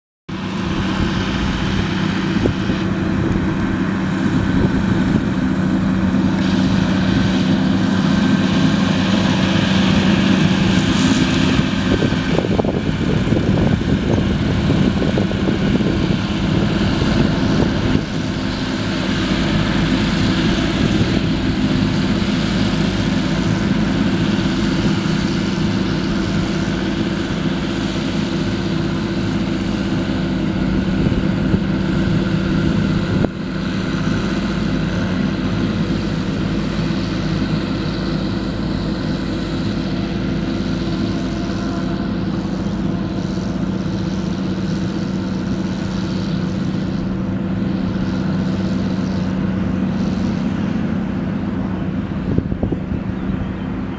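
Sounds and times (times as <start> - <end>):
mulcher shredding grass: 0.3 - 53.9
tractor diesel engine under load: 0.3 - 53.9.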